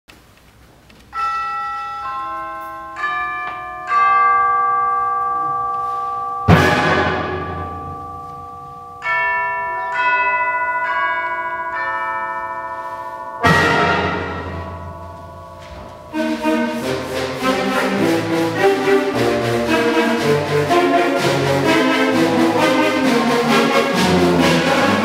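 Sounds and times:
concert band playing chords: 6.5 - 8.4, 13.4 - 25.0
percussion crash: 6.5 - 8.8, 13.4 - 25.0.

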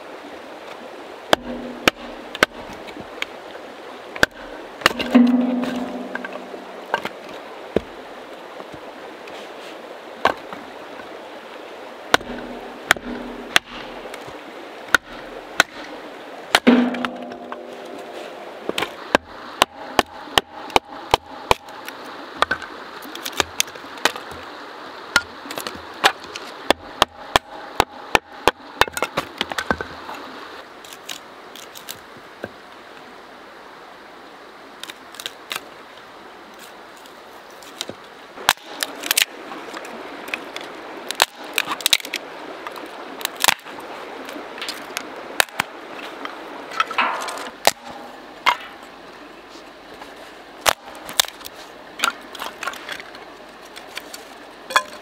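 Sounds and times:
creek rushing: 0.0 - 55.0
firewood cracking and breaking: 37.7 - 43.7, 50.6 - 55.0.

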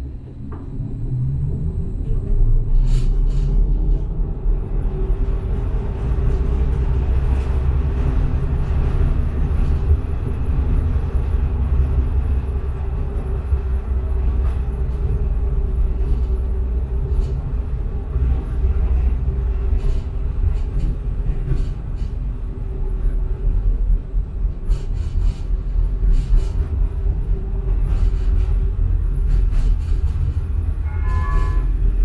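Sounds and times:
faint hum: 0.0 - 4.8
tram rumbling on rails: 0.0 - 32.0
wheels clicking on track: 4.9 - 31.6.

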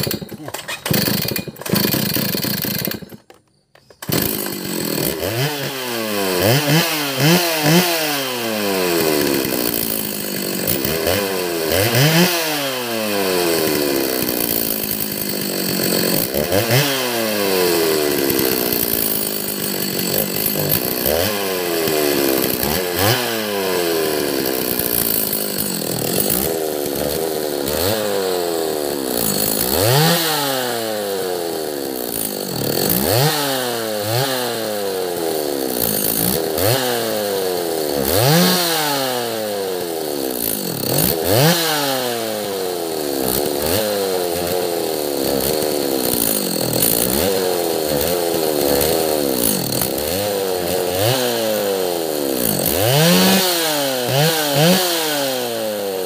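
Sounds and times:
starter cord pull: 0.0 - 4.6
chainsaw engine revving: 0.0 - 56.0.

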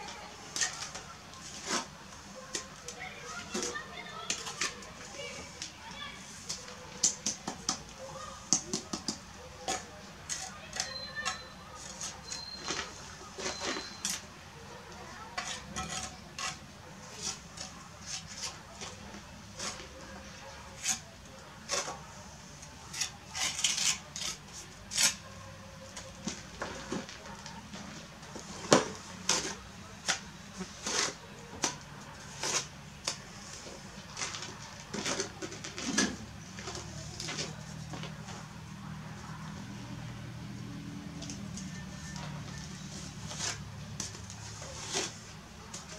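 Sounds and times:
trowel scraping: 0.1 - 5.6, 9.0 - 14.3, 15.4 - 27.2, 27.8 - 38.2, 42.0 - 45.9
trowel clinking on bricks: 8.5 - 14.2, 15.4 - 16.6.

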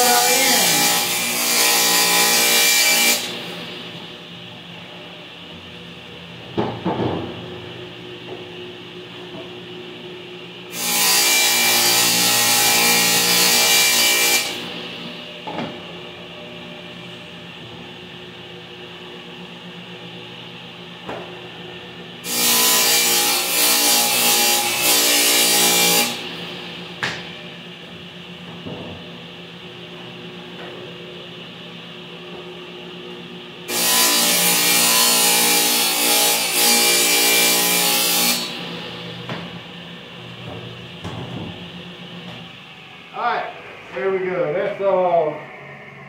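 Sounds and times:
table saw cutting plywood: 0.0 - 3.6, 10.7 - 15.1, 22.2 - 26.6, 33.7 - 39.0.

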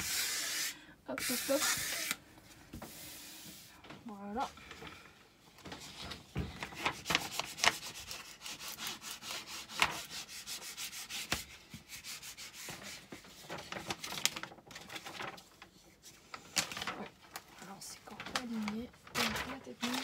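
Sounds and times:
canvas sheet rustling and crinkling: 13.2 - 20.0.

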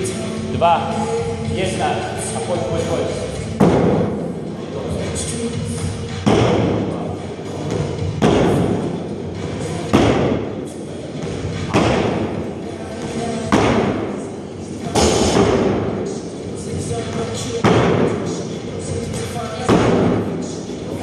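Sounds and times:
feet thudding on wooden box: 11.3 - 12.5.

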